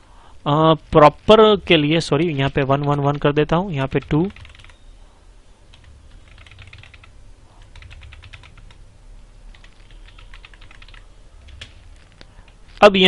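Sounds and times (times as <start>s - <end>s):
keyboard typing: 2.2s - 4.8s, 5.7s - 8.8s, 9.5s - 12.6s.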